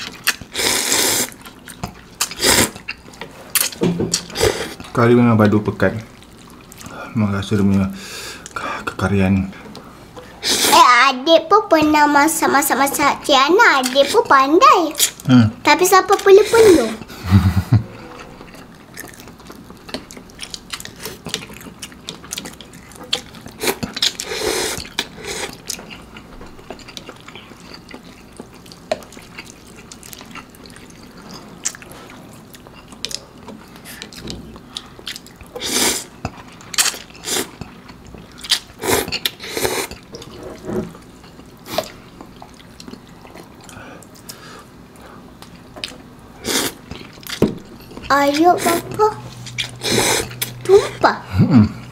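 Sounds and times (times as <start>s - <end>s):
wet chewing and mouth sounds: 0.0s - 5.0s, 6.0s - 7.0s, 18.0s - 51.1s.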